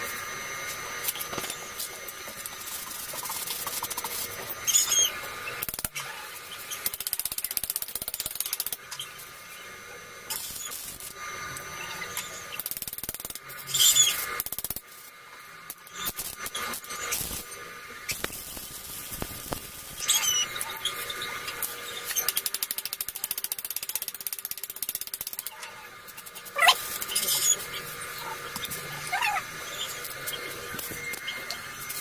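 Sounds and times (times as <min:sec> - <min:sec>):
ratchet clicking rapidly: 0:02.6 - 0:06.0, 0:06.7 - 0:09.0, 0:12.5 - 0:14.8, 0:21.6 - 0:27.4.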